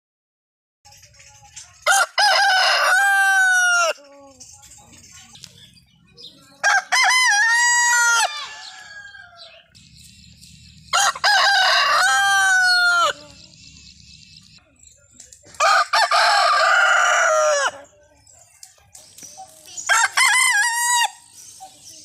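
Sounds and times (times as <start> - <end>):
rooster crowing: 1.9 - 4.0, 6.6 - 9.7, 10.9 - 13.2, 15.6 - 17.9, 19.9 - 21.2.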